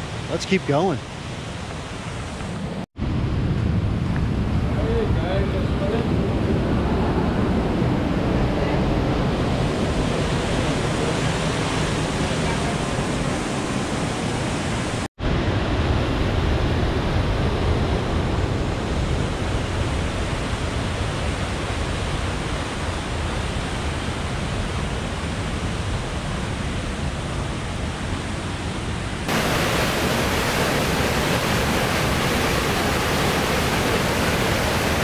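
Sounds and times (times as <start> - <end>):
waterfall rushing: 29.2 - 35.0.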